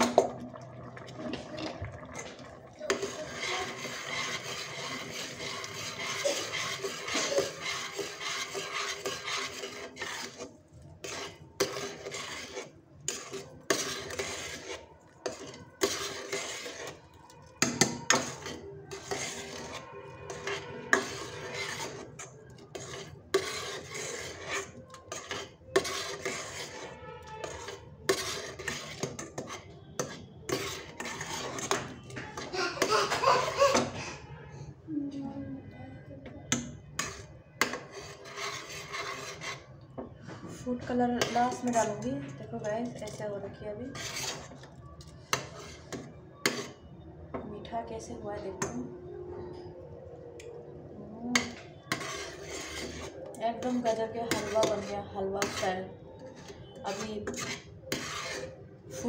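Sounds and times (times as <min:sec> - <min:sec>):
metal spoon stirring in a pot: 0:00.0 - 0:34.4, 0:36.4 - 0:59.0
spoon clinking on metal pot: 0:11.0 - 0:32.5, 0:51.4 - 0:55.6.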